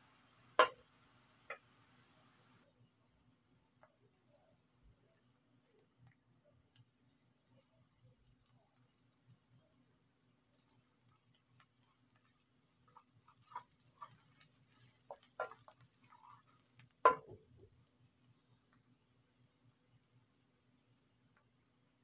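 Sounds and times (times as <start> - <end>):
food sizzling in oil: 0.0 - 2.7, 10.4 - 22.0
wooden spatula scraping a pan: 10.6 - 17.4.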